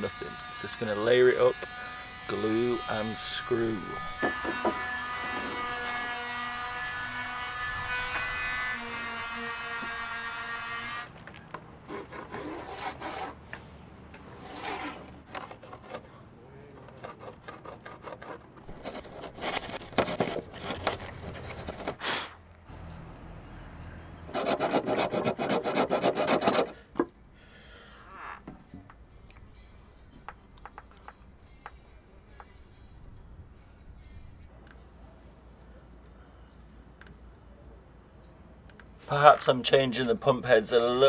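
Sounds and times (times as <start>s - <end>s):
rasping on wood: 4.0s - 6.2s, 11.8s - 13.4s, 14.3s - 16.1s, 16.9s - 22.0s, 24.3s - 26.8s
boards knocking and scraping: 4.2s - 5.6s, 16.8s - 22.0s.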